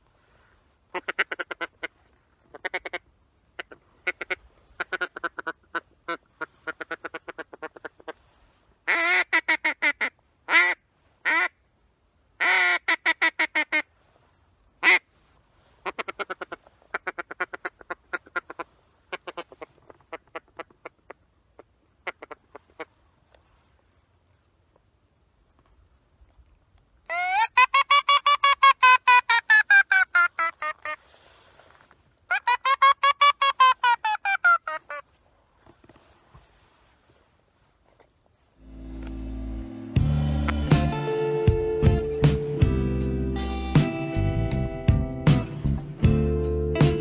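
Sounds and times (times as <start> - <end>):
duck call quacks: 0.9 - 8.2, 8.9 - 11.6, 12.4 - 13.9, 14.8 - 15.1, 15.8 - 21.1, 27.1 - 31.0, 32.3 - 35.0.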